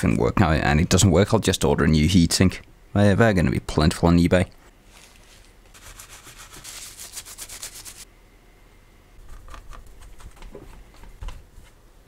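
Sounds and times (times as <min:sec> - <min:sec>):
tissue rubbed back and forth: 0:04.8 - 0:08.1.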